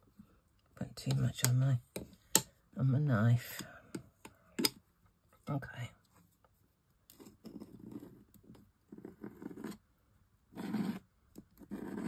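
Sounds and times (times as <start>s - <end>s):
palette knife scraping paste: 7.1s - 9.8s, 10.5s - 12.0s.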